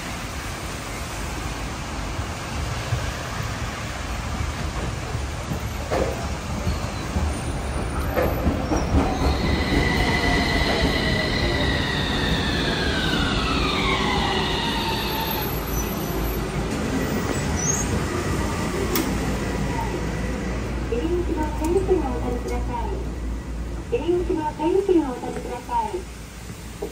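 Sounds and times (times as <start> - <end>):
rain hiss: 0.0 - 6.6, 22.8 - 26.9.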